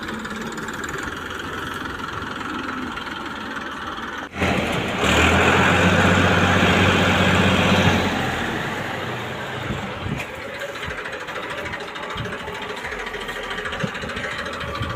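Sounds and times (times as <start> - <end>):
tractor diesel engine under load: 0.0 - 14.9.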